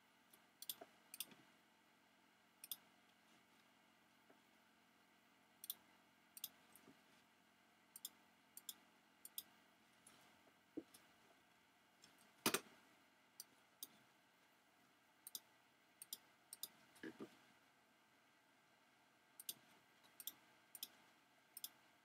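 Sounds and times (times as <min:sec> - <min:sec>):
faint computer mouse clicks: 0:21.6 - 0:21.8.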